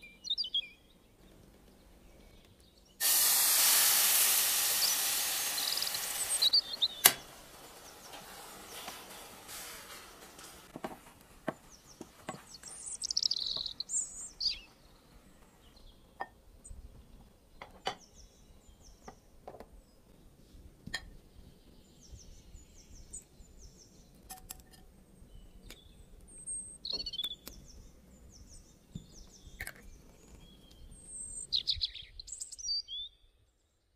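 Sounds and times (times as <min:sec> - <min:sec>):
small birds chirping: 0:00.0 - 0:33.9.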